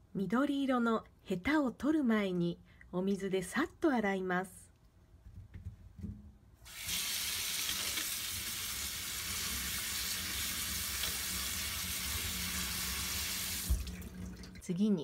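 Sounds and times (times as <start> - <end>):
tap water running into colander: 6.7 - 14.6.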